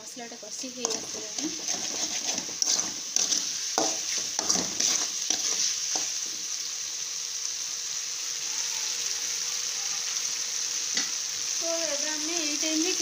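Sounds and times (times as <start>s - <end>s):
masala sizzling in oil: 0.0s - 13.0s
spatula scraping metal pan: 0.8s - 6.1s.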